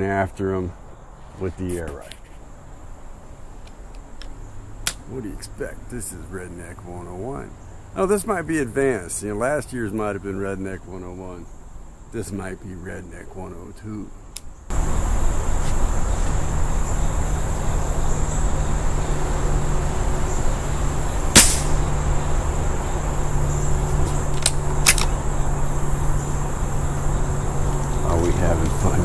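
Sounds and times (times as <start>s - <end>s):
low rumbling hiss: 0.0s - 29.0s
insect trill: 0.1s - 29.0s
sharp clicks: 3.6s - 5.1s, 21.4s - 21.8s, 24.0s - 25.2s
air rifle shot: 21.3s - 21.9s.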